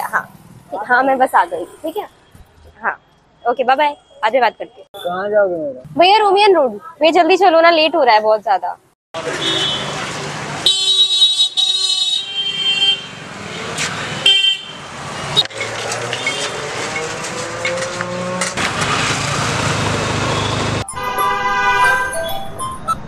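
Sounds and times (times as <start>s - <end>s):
city road traffic: 0.0s - 23.0s
vehicle horns honking: 9.2s - 17.8s, 20.2s - 22.2s.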